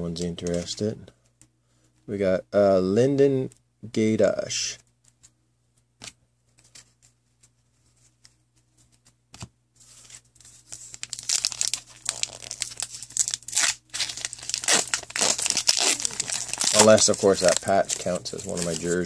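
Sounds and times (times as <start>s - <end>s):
plastic wrapper crinkling and tearing: 10.6s - 19.0s.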